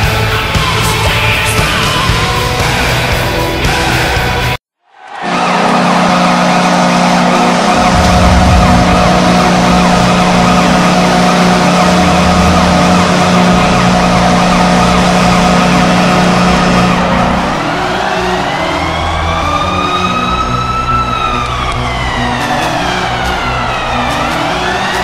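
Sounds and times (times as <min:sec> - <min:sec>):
stadium goal horn blast: 0:05.2 - 0:18.6.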